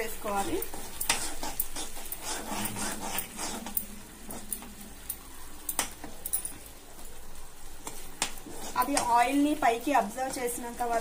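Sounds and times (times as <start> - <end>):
spoon stirring and scraping sauce: 0.0 - 6.5, 7.8 - 9.1
light sizzle: 0.0 - 11.0.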